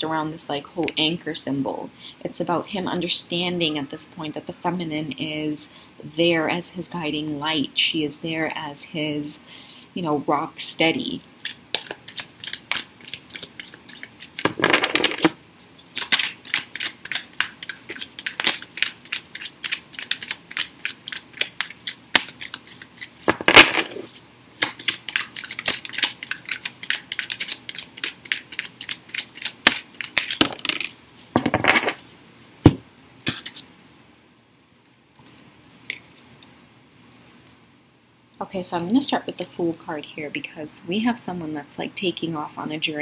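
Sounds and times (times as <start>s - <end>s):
cards riffling: 11.8s - 32.1s
cards flicking and slapping: 15.9s - 30.9s.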